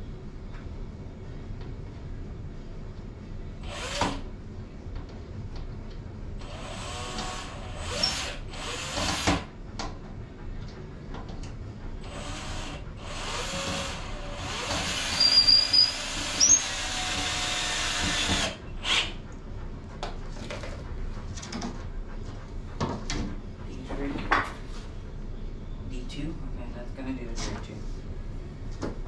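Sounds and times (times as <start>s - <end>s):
power drill drilling into wood: 3.6s - 4.2s, 6.4s - 9.5s, 12.1s - 19.1s
high squeal: 15.1s - 16.8s.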